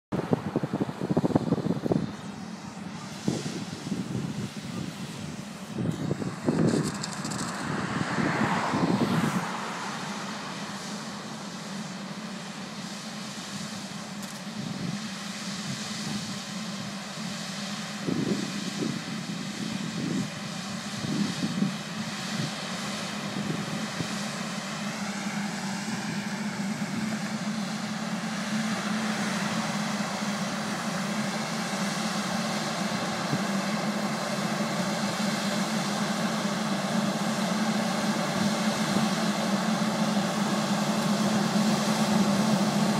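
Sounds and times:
tractor and vacuum fans droning: 0:00.1 - 0:42.9.

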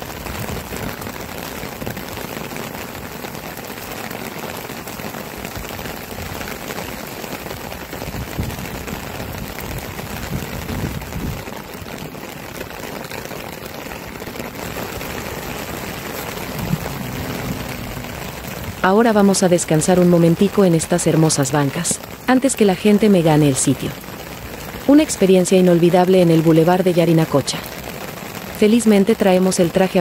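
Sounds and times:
heavy rain on decking and paving: 0:00.0 - 0:30.0.

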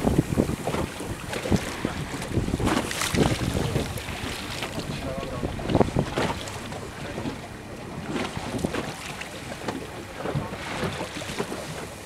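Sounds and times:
wind gusting on microphone: 0:00.0 - 0:09.1
sea water washing: 0:00.0 - 0:12.0.

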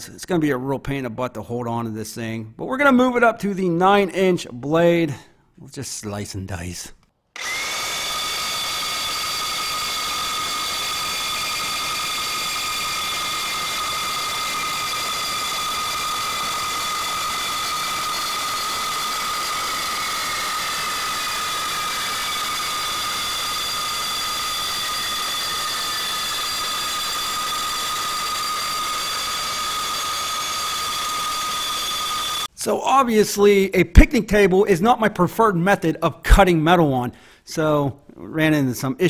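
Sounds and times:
reciprocating saw cutting steel pipe: 0:07.4 - 0:32.5.

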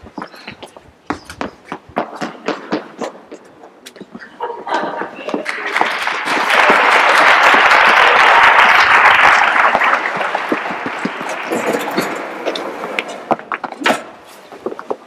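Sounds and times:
crowd applauding: 0:05.4 - 0:13.5.

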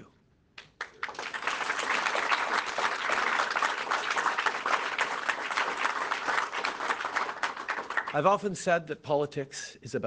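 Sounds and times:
crowd applauding: 0:00.7 - 0:08.5.

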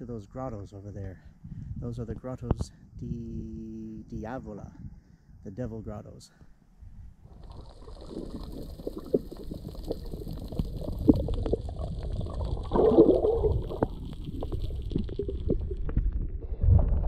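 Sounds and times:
water sloshing and gurgling underwater: 0:06.9 - 0:17.0
water splash: 0:07.3 - 0:17.0.

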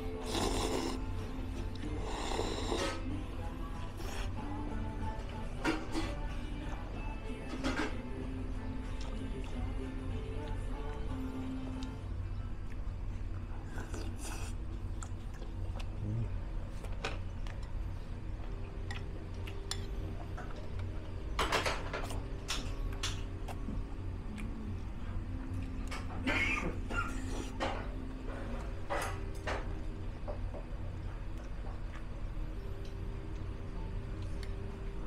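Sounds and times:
low hum: 0:00.0 - 0:35.0
slurping: 0:00.1 - 0:01.2.

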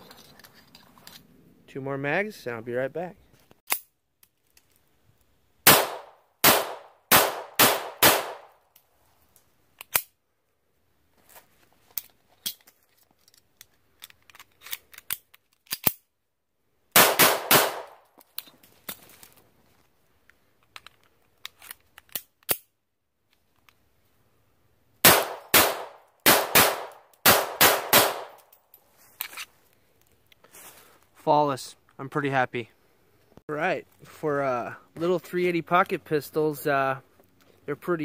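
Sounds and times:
metallic clicks of pistol handling: 0:03.6 - 0:05.3, 0:08.7 - 0:10.2, 0:11.9 - 0:16.1, 0:17.9 - 0:19.2, 0:20.2 - 0:22.7, 0:28.3 - 0:30.4
pistol shots: 0:05.6 - 0:08.5, 0:17.0 - 0:18.0, 0:25.0 - 0:28.4.

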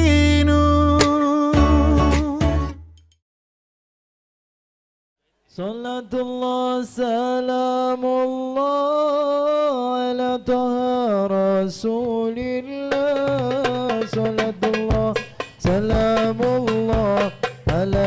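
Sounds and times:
hand drum strokes: 0:13.0 - 0:18.0.

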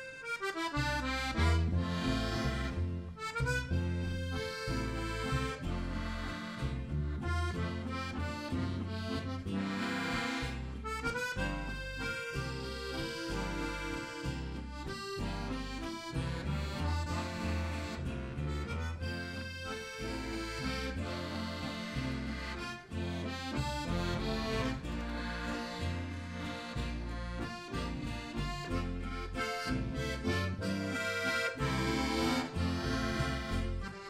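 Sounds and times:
button accordion folk tune: 0:00.0 - 0:34.0.

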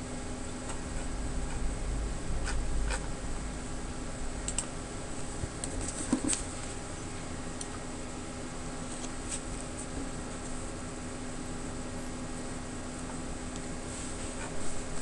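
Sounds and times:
electrical hum: 0:00.0 - 0:15.0
computer mouse clicks: 0:04.5 - 0:04.7.

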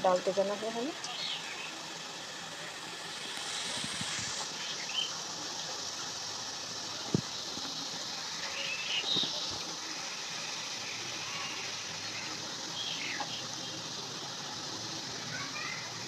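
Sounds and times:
batter sizzling in hot oil: 0:00.0 - 0:16.0.

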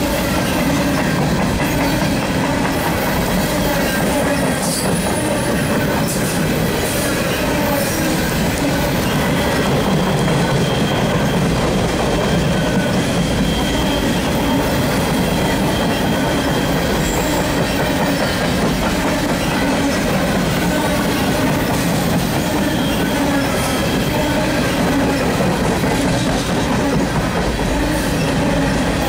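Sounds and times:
freight train rumbling past: 0:00.0 - 0:29.0.

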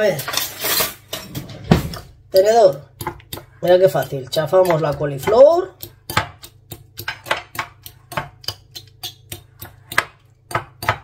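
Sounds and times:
fork clicking against bowl: 0:04.0 - 0:10.0.

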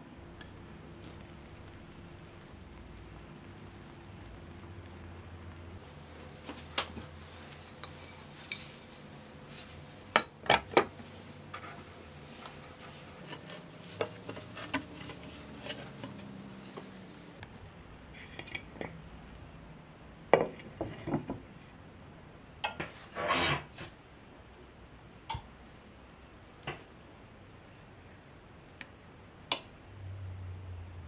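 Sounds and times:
short scrape: 0:23.0 - 0:23.9.

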